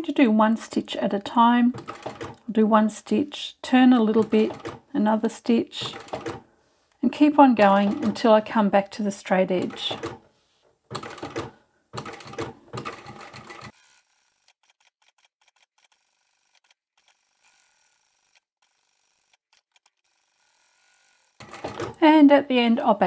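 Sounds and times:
sewing machine stitching: 0:00.8 - 0:02.6, 0:03.7 - 0:06.4, 0:07.2 - 0:08.6, 0:09.2 - 0:10.3, 0:10.9 - 0:22.2.

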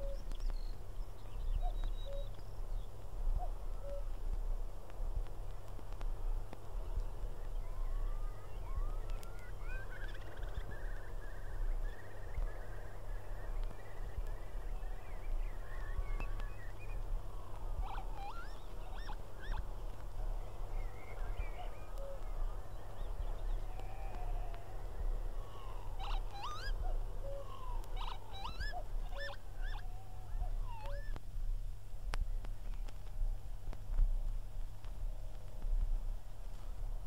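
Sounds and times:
birds calling and chirping: 0:06.9 - 0:31.2.

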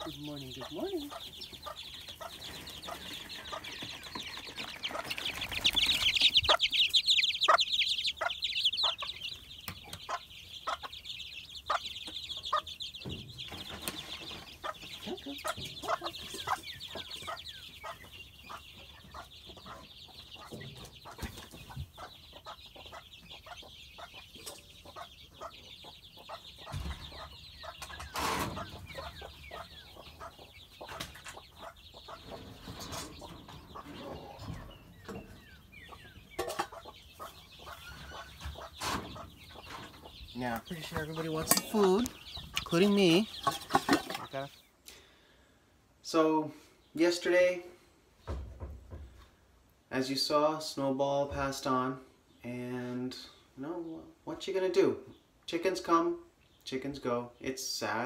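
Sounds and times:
hen clucking: 0:00.0 - 0:44.7
chicks peeping: 0:00.0 - 0:58.0.

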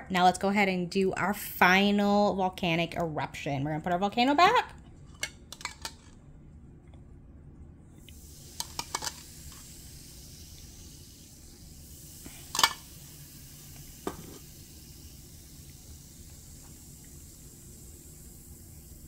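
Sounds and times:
soft fizzing hiss: 0:08.0 - 0:19.0.

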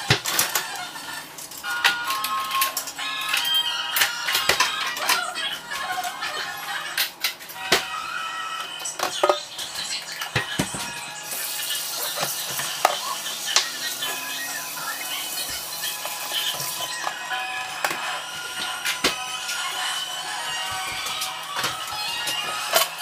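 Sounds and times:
background music: 0:00.0 - 0:23.0
dishes and utensils clinking: 0:08.6 - 0:23.0.

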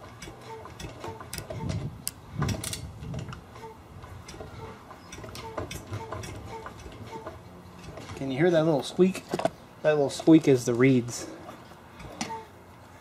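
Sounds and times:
reed valve squeak: 0:00.2 - 0:01.9, 0:03.5 - 0:08.0, 0:12.0 - 0:12.6.

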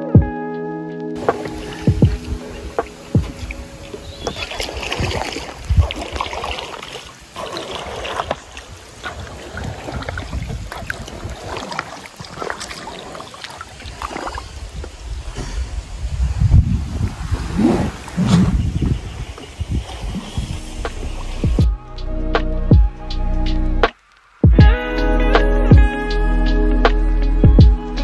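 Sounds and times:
water splashing and sloshing: 0:01.2 - 0:23.0
wind rumbling on microphone: 0:01.2 - 0:23.9.

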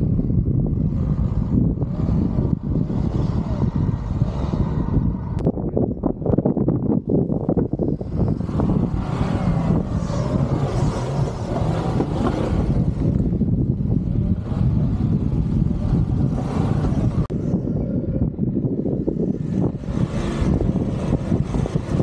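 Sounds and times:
low engine rumble: 0:00.0 - 0:22.0
rushing noise: 0:06.9 - 0:22.0.

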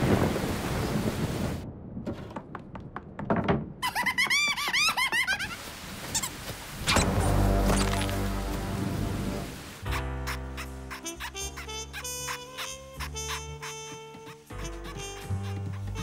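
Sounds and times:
cartoon rain: 0:00.0 - 0:01.9, 0:03.8 - 0:13.0
squeaky chirps: 0:03.8 - 0:08.1, 0:09.9 - 0:16.0.

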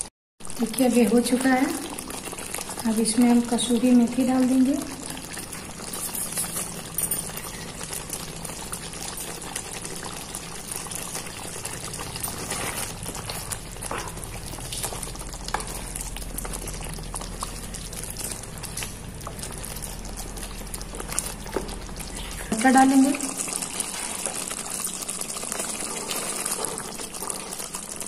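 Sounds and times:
gravy bubbling in a pot: 0:00.0 - 0:28.0
wooden spatula stirring: 0:09.0 - 0:28.0.

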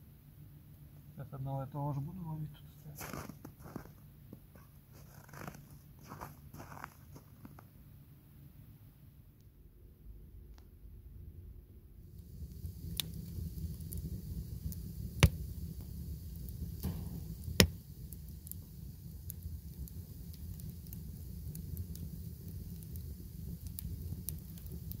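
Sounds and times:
fire rumbling with crackles: 0:00.3 - 0:08.8, 0:10.0 - 0:25.0.

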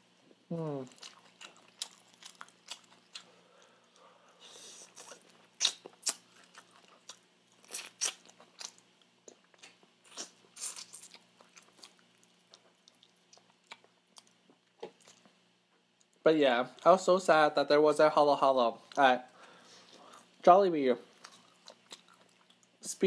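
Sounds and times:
chewing fried chicken: 0:00.8 - 0:17.0, 0:21.1 - 0:22.9.

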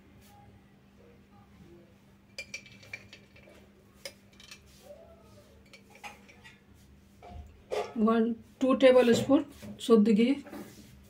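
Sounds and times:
spoon clinking on steel dishes: 0:02.3 - 0:04.7, 0:05.6 - 0:06.6.

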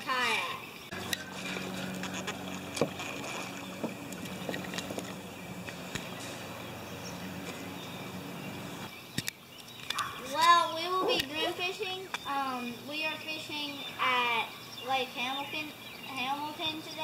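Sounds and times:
steady low hum: 0:00.7 - 0:09.0
paddle splashing in water: 0:01.0 - 0:06.2.

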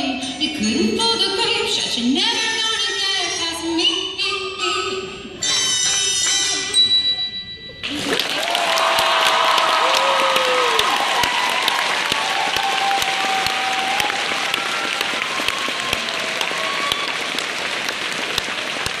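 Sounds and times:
audience applauding: 0:07.8 - 0:19.0
voices cheering: 0:08.0 - 0:19.0.

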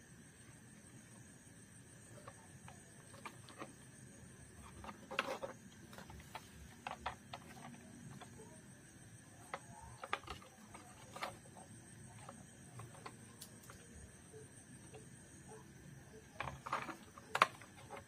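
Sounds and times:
plastic toy cars clicking: 0:04.6 - 0:08.6, 0:09.4 - 0:14.0, 0:16.3 - 0:18.0.

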